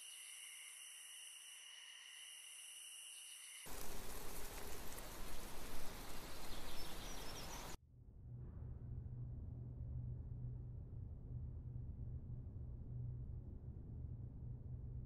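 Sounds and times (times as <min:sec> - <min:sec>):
high-pitched hiss with whining tones: 0:00.0 - 0:07.8.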